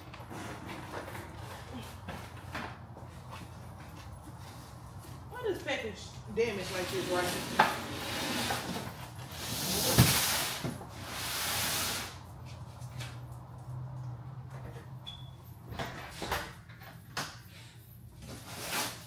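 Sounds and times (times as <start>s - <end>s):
cardboard boxes scraping floor: 6.6s - 12.7s, 18.2s - 19.0s.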